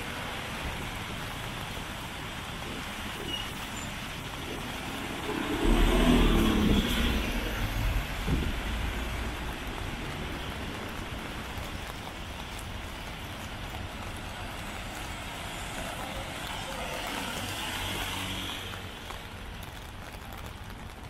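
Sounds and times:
city street noise: 0.0 - 21.0
vehicle engine passing by: 4.6 - 10.3.

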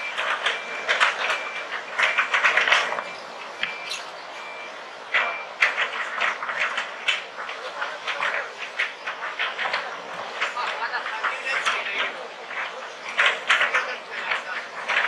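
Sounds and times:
reversing alarm beeping: 0.0 - 7.0, 7.6 - 15.0.

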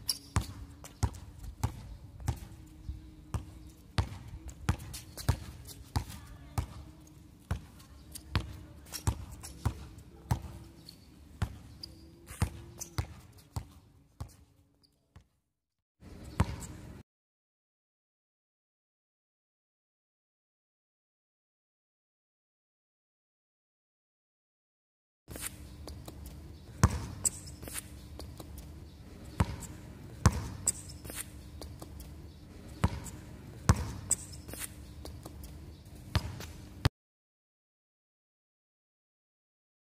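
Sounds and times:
basketball bouncing on court: 0.0 - 2.6, 3.3 - 10.8, 11.4 - 14.4, 16.3 - 16.9, 25.5 - 36.9.

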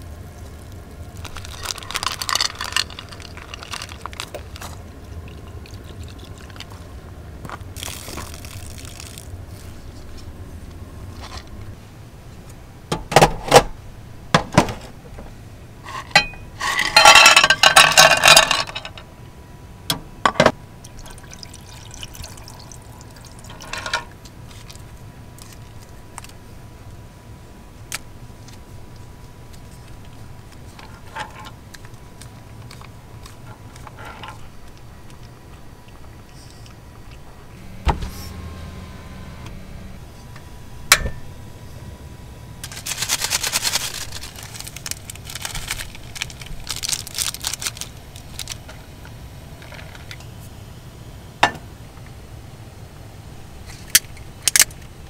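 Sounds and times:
clams pouring into pan: 1.2 - 4.2.

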